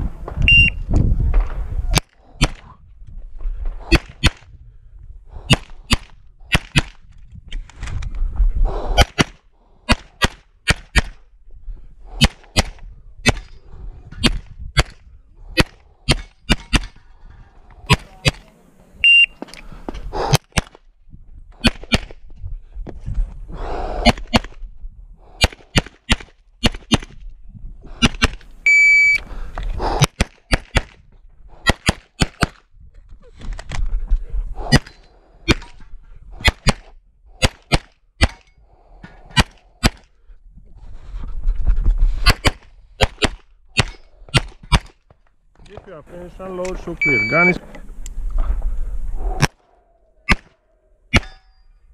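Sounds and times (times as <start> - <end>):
short high beeps: 0.5 - 0.8, 19.0 - 19.4, 28.6 - 29.2, 47.0 - 47.6.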